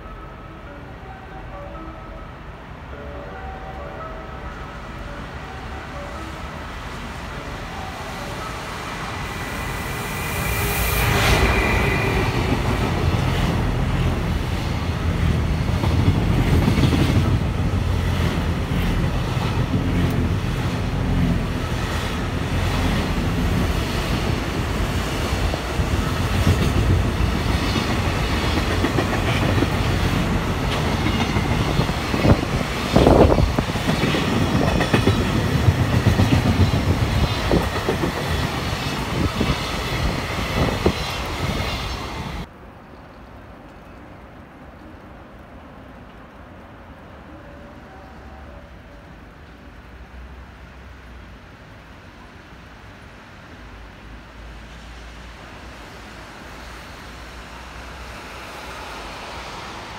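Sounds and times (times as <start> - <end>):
freight train passing: 0.0 - 59.9.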